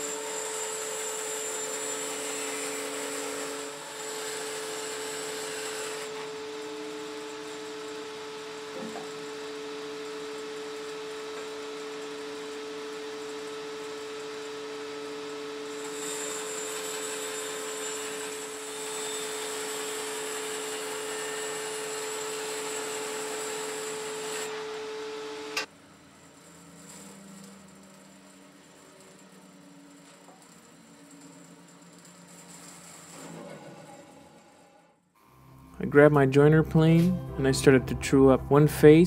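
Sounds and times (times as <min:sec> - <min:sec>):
saw blade cutting wood: 0:00.0 - 0:12.7, 0:15.4 - 0:25.7, 0:28.7 - 0:34.9
bandsaw humming: 0:00.0 - 0:25.7.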